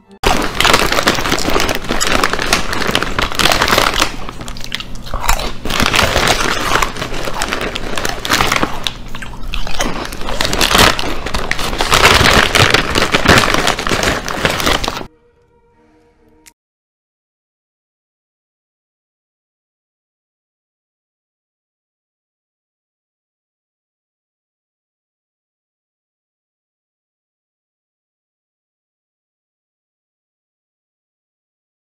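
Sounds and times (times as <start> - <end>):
man chewing and crunching food: 0.2 - 15.1
plastic snack bag crinkling: 0.2 - 15.1.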